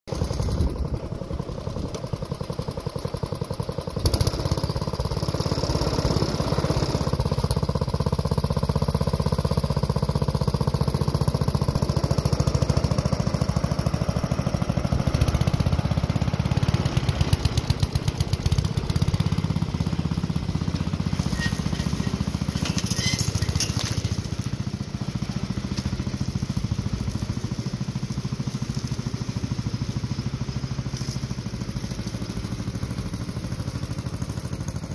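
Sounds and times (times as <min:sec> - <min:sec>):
lawn tractor engine mowing: 0:00.1 - 0:34.9.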